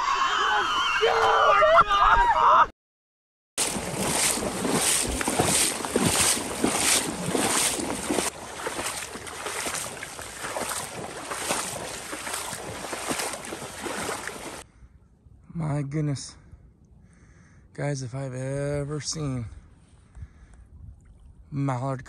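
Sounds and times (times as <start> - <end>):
boots wading through water: 3.6 - 14.6
sled dragging through water: 3.6 - 14.6.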